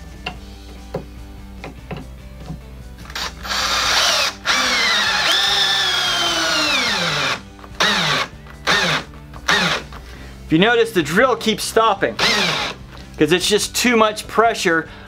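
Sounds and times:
cordless drill driving screw: 0:03.0 - 0:10.0, 0:12.2 - 0:12.8.

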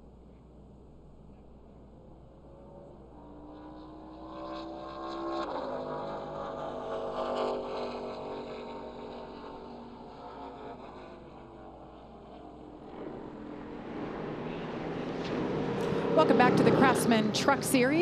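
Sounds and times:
race truck engines running: 0:13.6 - 0:18.0.

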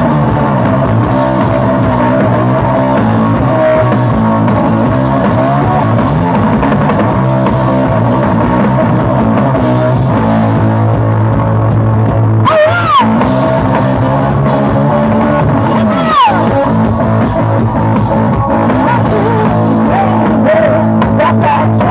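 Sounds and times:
drum kit: 0:00.0 - 0:21.9
electric guitar: 0:00.0 - 0:21.9
high swooping guitar notes: 0:00.0 - 0:21.9.

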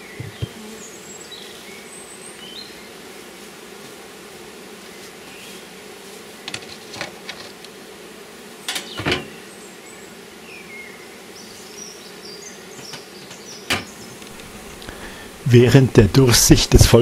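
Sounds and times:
wooden knocks of hive lid: 0:00.0 - 0:00.8, 0:03.7 - 0:04.1, 0:06.4 - 0:07.8, 0:08.6 - 0:09.4, 0:12.7 - 0:15.3
honeybees humming: 0:00.0 - 0:17.0.

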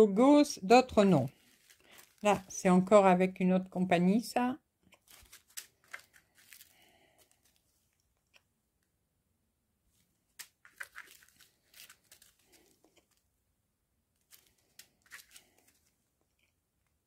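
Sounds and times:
plastic bags crinkling: 0:01.1 - 0:02.7, 0:05.0 - 0:07.6, 0:10.4 - 0:13.2, 0:14.2 - 0:15.9.

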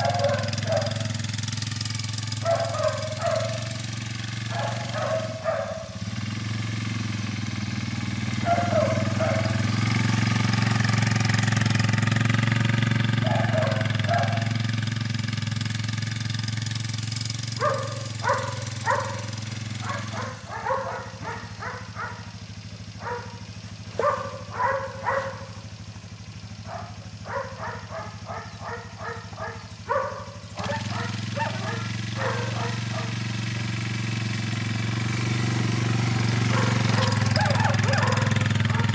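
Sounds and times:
puppy barking: 0:00.0 - 0:01.2, 0:02.4 - 0:03.8, 0:04.5 - 0:06.0, 0:08.4 - 0:09.7, 0:13.2 - 0:14.6, 0:17.6 - 0:25.7, 0:26.6 - 0:33.2, 0:36.5 - 0:38.9
quad bike engine running: 0:00.0 - 0:38.9.

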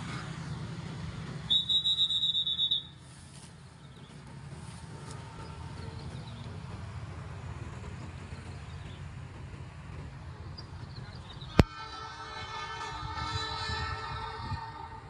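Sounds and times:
distant train horn: 0:00.0 - 0:03.3, 0:04.4 - 0:07.0, 0:10.6 - 0:15.0
distant traffic: 0:00.0 - 0:15.0
wind rumble: 0:00.6 - 0:15.0.

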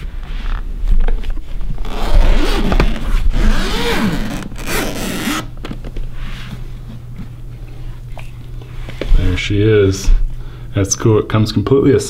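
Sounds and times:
zipper being pulled open: 0:01.7 - 0:05.5.

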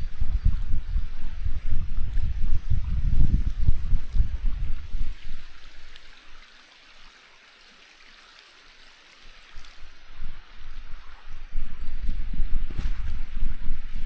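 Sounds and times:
wind and movement rumble: 0:00.0 - 0:06.0, 0:09.8 - 0:14.0
flowing stream hiss: 0:00.0 - 0:14.0.

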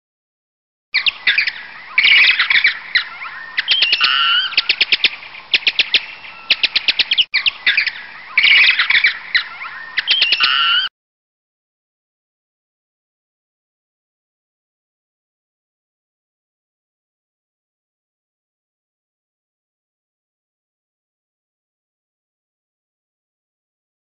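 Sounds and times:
birds chirping and trilling: 0:01.0 - 0:10.9.

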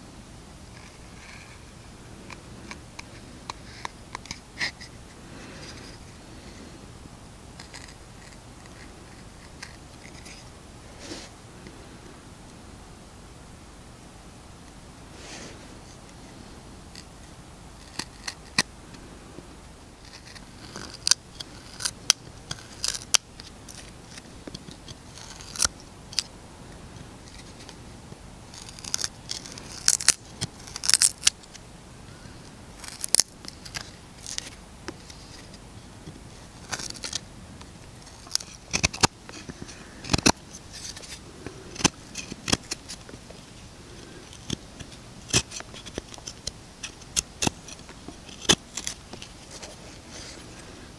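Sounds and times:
knife scraping wood: 0:07.6 - 0:11.3, 0:17.8 - 0:18.7, 0:20.0 - 0:26.3, 0:28.5 - 0:31.4, 0:32.8 - 0:35.6, 0:36.4 - 0:37.2, 0:37.8 - 0:50.8.

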